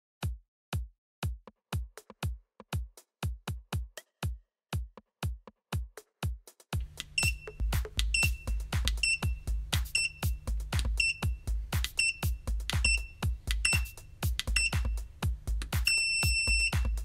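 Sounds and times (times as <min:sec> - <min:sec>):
electronic music with bass beat: 0:01.2 - 0:17.0
short high electronic beeps: 0:07.2 - 0:10.4, 0:12.0 - 0:14.0, 0:15.8 - 0:17.0.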